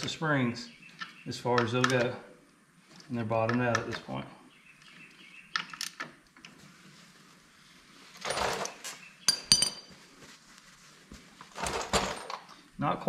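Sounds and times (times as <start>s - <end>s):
rag rustling: 6.5s - 12.4s
metal tools clinking down: 8.2s - 9.9s, 11.6s - 12.6s.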